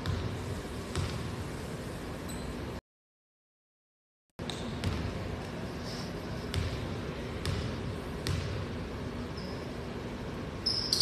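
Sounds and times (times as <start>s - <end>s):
basketball bouncing on wooden floor: 0.0s - 1.3s, 4.4s - 5.2s, 6.5s - 8.6s
gym room noise: 0.0s - 2.8s, 4.4s - 11.0s.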